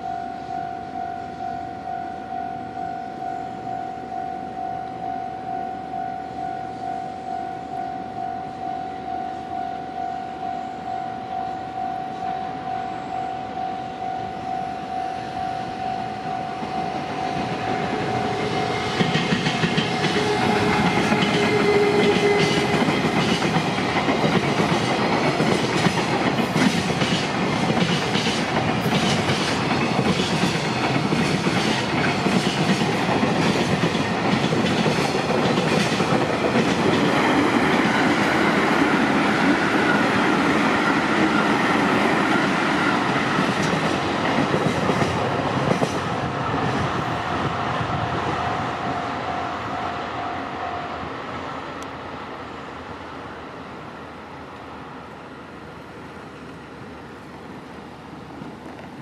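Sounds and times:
crossing warning bell ringing: 0.0s - 51.2s
train wheels clacking over rails: 16.5s - 48.9s.

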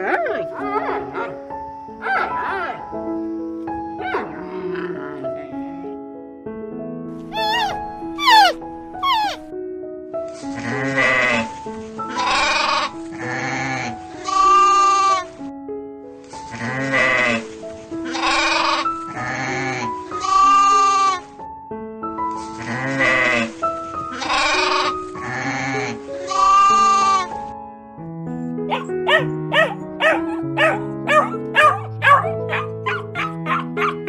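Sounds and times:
background music: 0.0s - 34.0s
goats bleating: 10.6s - 11.5s, 12.1s - 15.3s, 16.6s - 21.2s, 22.6s - 23.5s, 24.1s - 27.3s.

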